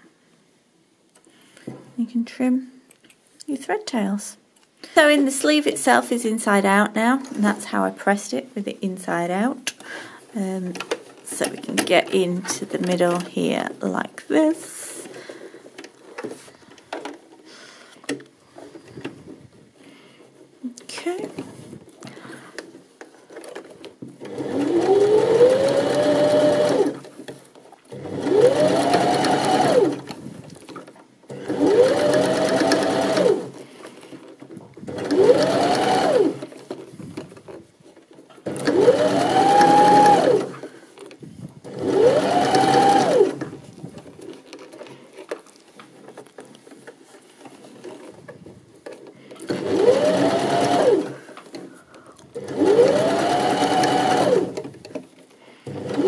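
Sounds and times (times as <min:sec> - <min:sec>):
sewing machine stitching: 0:20.9 - 0:56.0.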